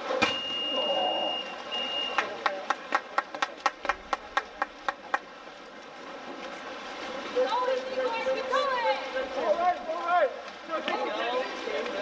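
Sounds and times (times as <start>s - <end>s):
high whistle blast: 0.2s - 2.2s
rhythmic hand clapping: 2.1s - 5.3s.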